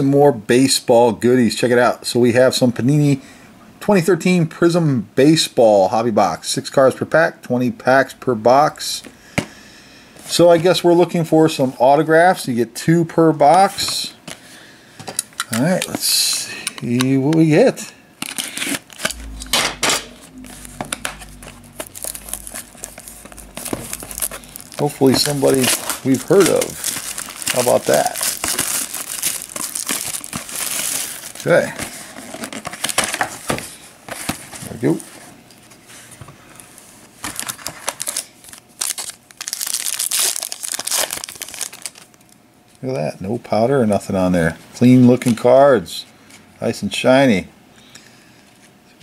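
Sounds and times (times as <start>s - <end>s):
plastic wrap crinkling and tearing: 20.3s - 33.4s, 37.2s - 42.3s.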